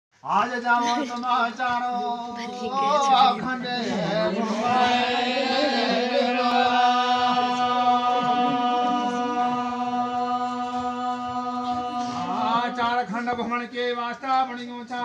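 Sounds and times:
person chanting one long note: 4.1s - 12.7s.

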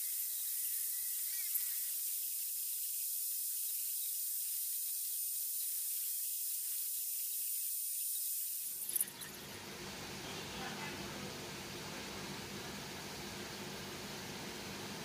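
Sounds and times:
faint thin whines: 0.0s - 6.4s
steady high-pitched hiss: 0.0s - 15.0s.

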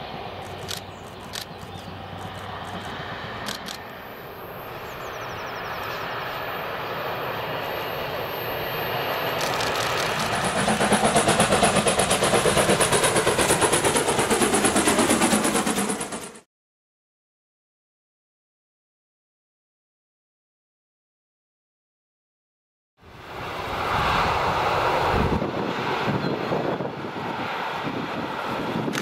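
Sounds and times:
train rumbling by: 0.0s - 16.4s, 23.1s - 29.0s
steam locomotive exhaust beats: 9.4s - 16.2s.

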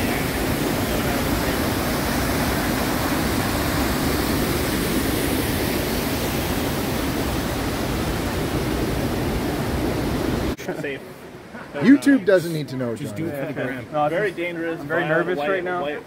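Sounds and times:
whitewater rushing over rapids: 0.0s - 10.6s.

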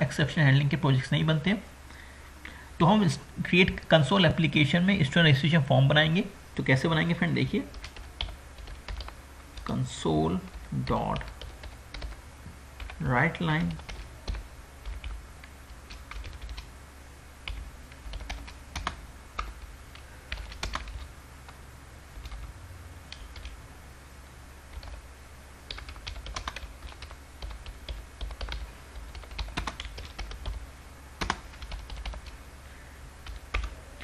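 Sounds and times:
low steady hum: 0.0s - 34.0s
typing on computer keyboard: 7.7s - 9.8s, 10.5s - 12.2s, 13.6s - 15.2s, 15.9s - 16.7s, 17.5s - 21.1s, 24.7s - 25.0s, 25.7s - 30.6s, 31.2s - 32.3s, 33.2s - 33.7s.

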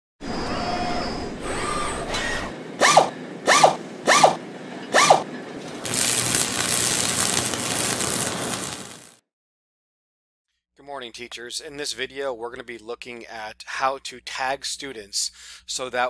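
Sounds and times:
mechanical servo whirs: 0.2s - 9.1s
loud hiss: 5.8s - 9.2s.

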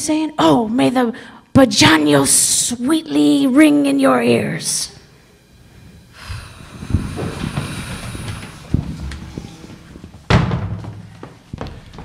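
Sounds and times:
low thumps: 5.8s - 12.0s.

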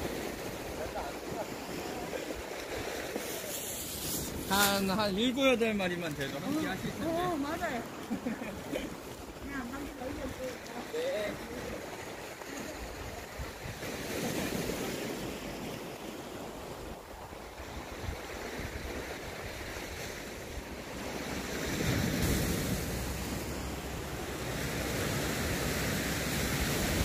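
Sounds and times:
wind blowing on microphone: 0.0s - 8.0s, 9.0s - 27.0s
sea waves washing ashore: 0.0s - 27.0s.

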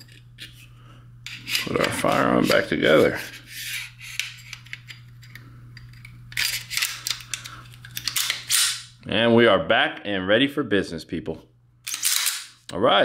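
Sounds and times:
faint steady hum: 0.0s - 13.0s
pistol slide scraping: 1.3s - 8.9s.

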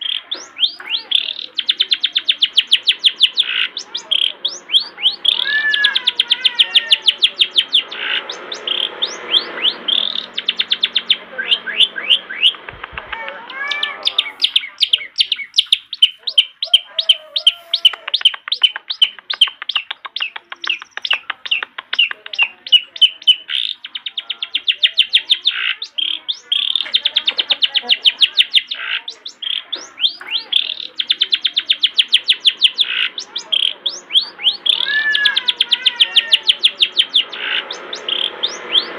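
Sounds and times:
shrike singing high chips: 0.0s - 20.0s, 20.6s - 38.9s.

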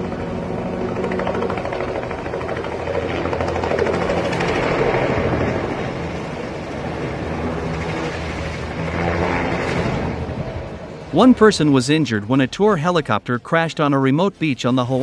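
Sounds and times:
turbine running: 0.0s - 11.8s
helicopter rotor chopping: 0.0s - 15.0s.

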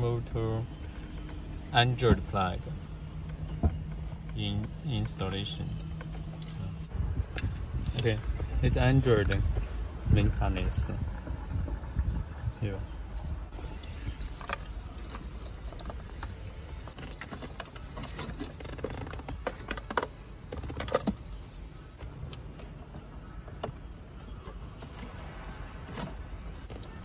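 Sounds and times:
steady low rumble: 0.0s - 18.4s.

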